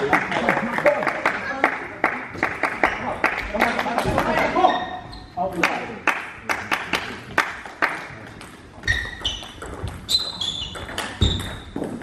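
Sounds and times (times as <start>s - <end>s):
shoes squeaking on floor: 4.4s - 5.5s, 8.8s - 12.0s
table tennis ball bouncing: 8.4s - 12.0s.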